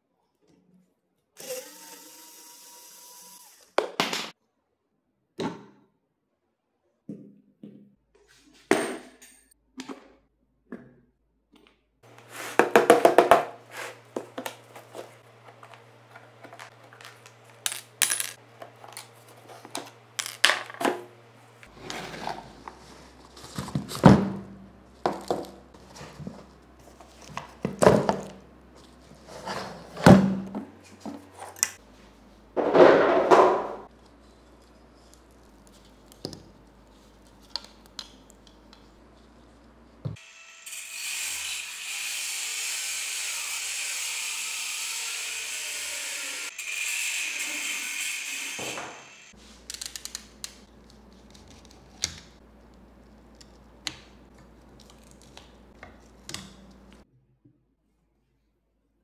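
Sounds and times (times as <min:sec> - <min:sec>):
angle grinder cutting: 0:01.4 - 0:03.8, 0:40.2 - 0:49.4
metal clips dropped on table: 0:20.2 - 0:20.9.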